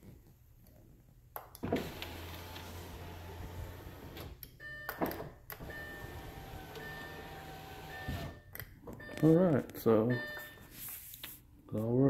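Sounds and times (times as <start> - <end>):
power window motor humming: 1.6 - 4.4, 5.6 - 8.4.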